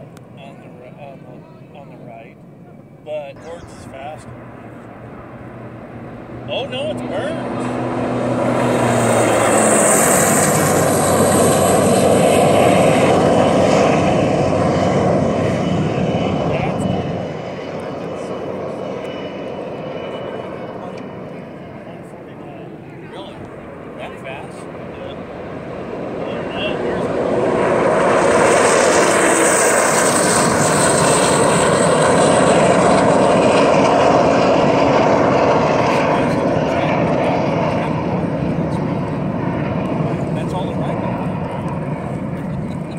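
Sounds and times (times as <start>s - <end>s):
jet boat engine roar: 0.0s - 42.9s
jet boat engine running flat out: 3.3s - 21.8s.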